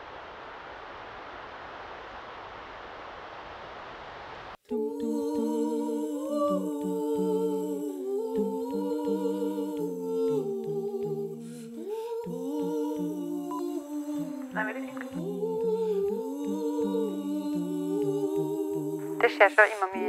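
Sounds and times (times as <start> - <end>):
steady hiss: 0.0 - 20.0
voices humming in harmony: 4.7 - 20.0.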